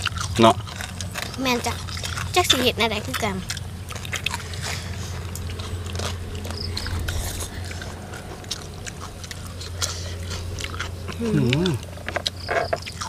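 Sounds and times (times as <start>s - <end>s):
people chewing: 0.0s - 13.0s
steady low hum: 0.0s - 13.0s.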